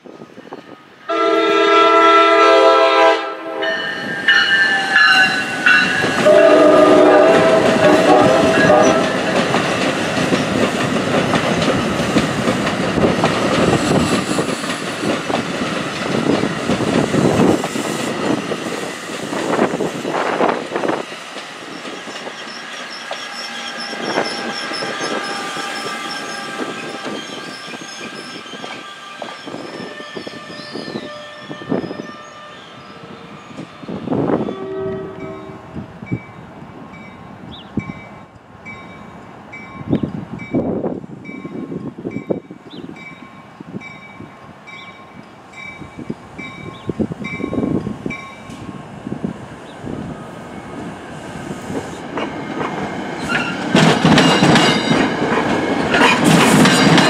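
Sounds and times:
train rumble and wheel clatter: 0.0 - 57.0
train horn blasts: 1.1 - 9.4, 34.4 - 35.8.

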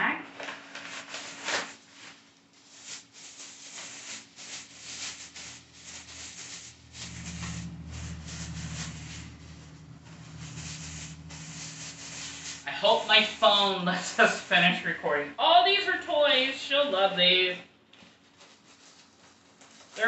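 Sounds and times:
tissue paper rustling: 0.6 - 14.9, 18.0 - 20.0
steady low hum: 4.4 - 16.2.

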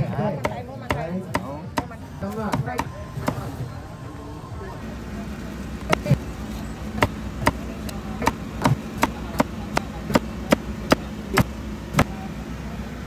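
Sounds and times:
cleaver chopping on wooden block: 0.4 - 3.4, 8.2 - 12.1.

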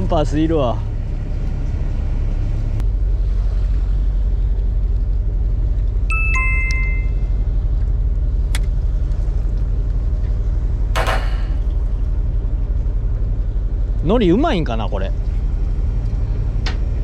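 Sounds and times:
boat engine idling: 0.0 - 17.0
two-note descending chime: 6.1 - 7.3.

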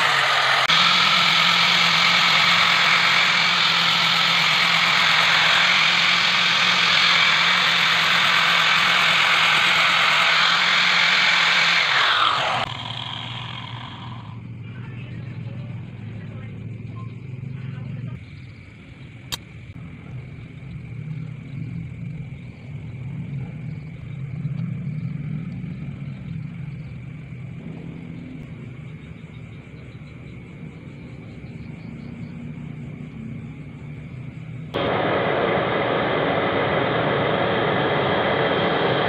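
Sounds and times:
forge fire rushing under air blast: 0.0 - 14.4, 34.8 - 39.0
low steady rumble: 0.0 - 39.0
sharp click: 19.3 - 19.5.

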